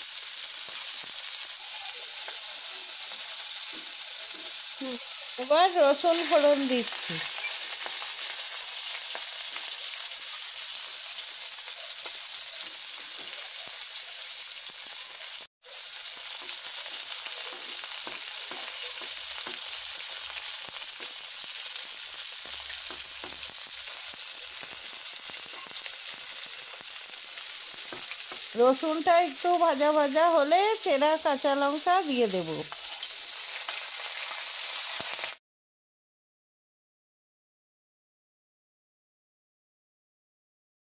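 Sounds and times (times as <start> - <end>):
garlic sizzling in hot oil: 0.0 - 35.4
spatula scraping a wok: 6.0 - 10.8, 15.2 - 28.5, 32.7 - 35.4.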